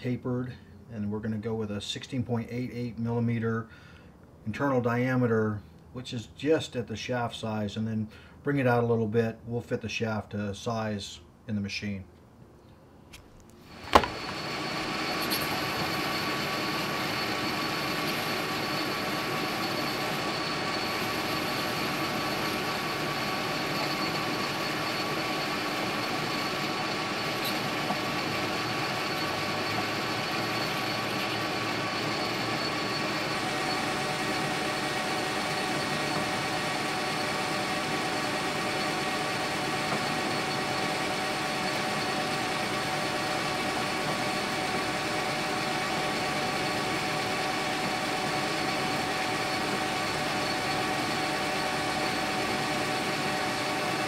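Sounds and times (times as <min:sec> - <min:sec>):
metal lathe mechanical whine: 0:13.7 - 0:54.0.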